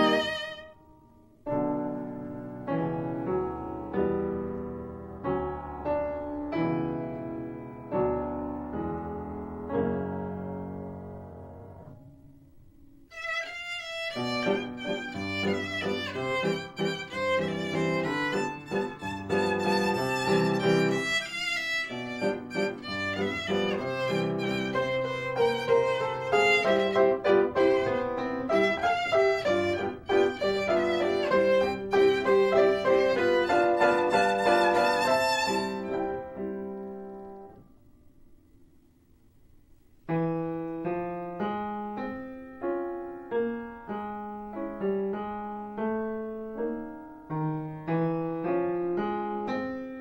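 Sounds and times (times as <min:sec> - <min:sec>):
bowed violin melody: 0:00.0 - 0:00.9, 0:13.1 - 0:36.6.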